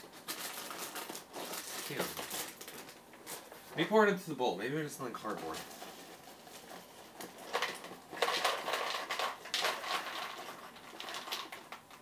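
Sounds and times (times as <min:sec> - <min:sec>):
cereal pouring into plastic bowl: 0:05.2 - 0:12.0.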